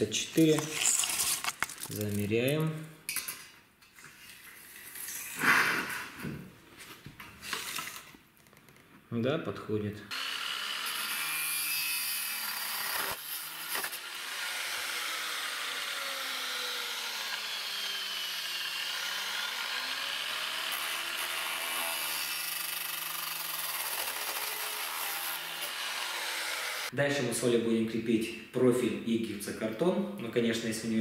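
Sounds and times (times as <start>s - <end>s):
angle grinder cutting steel: 10.1s - 26.9s.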